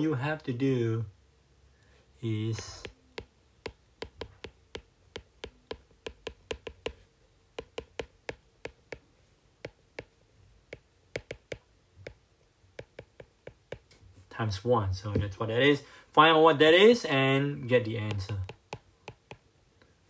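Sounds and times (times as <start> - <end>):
stylus tapping on glass screen: 2.6 - 7.0, 7.6 - 10.1, 10.7 - 12.2, 12.8 - 14.0, 18.0 - 19.4.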